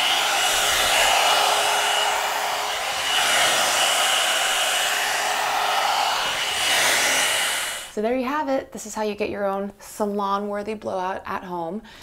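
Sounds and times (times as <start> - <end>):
hair dryer air rush: 0.0 - 8.0
high motor whine: 0.0 - 8.0.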